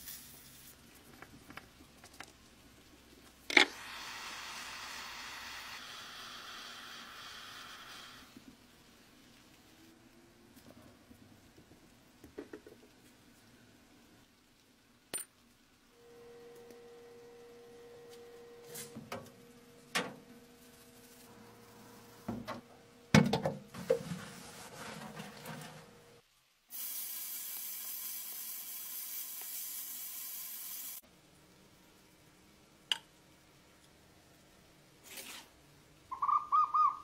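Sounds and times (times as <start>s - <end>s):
faint hum: 15.9s - 23.1s.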